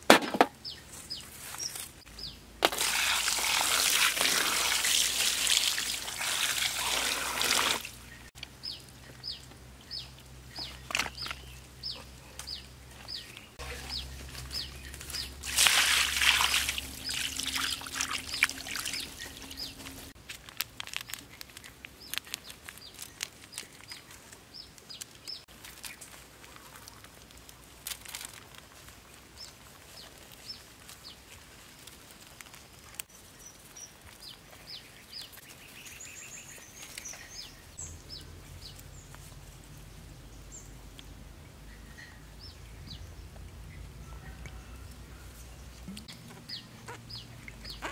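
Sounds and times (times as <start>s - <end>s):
bird chirping: 0.6s - 2.5s, 8.0s - 15.4s, 16.5s - 20.1s, 33.1s - 44.8s, 45.4s - 47.9s.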